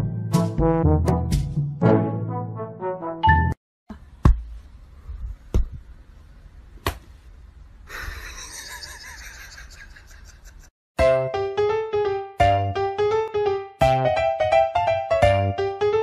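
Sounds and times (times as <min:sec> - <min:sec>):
sharp slaps: 0:06.8 - 0:07.1.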